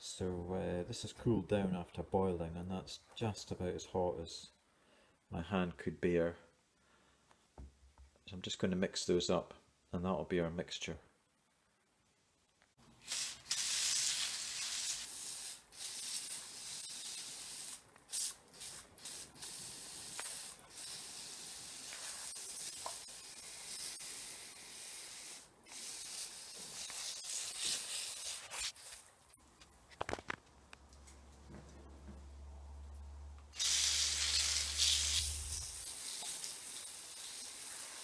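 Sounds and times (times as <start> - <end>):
garden sprayer hissing: 13.0 - 29.0, 33.5 - 38.0.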